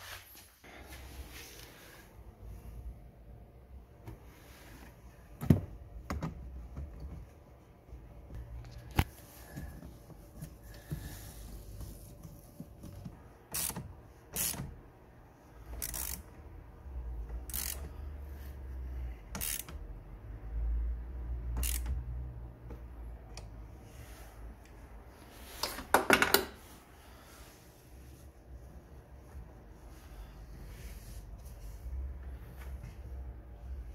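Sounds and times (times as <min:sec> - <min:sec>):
hand ratchet clicking: 0:14.4 - 0:14.6, 0:15.8 - 0:16.3, 0:17.4 - 0:17.9, 0:19.3 - 0:19.8, 0:21.6 - 0:22.0.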